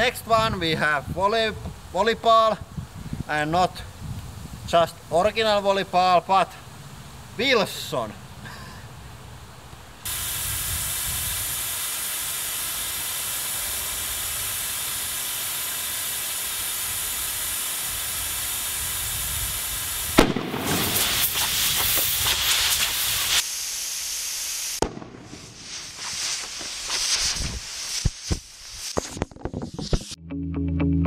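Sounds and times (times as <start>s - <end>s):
compressed air hissing into ball: 10.0s - 30.2s
ball bursting bang: 20.2s - 22.4s, 24.8s - 25.6s.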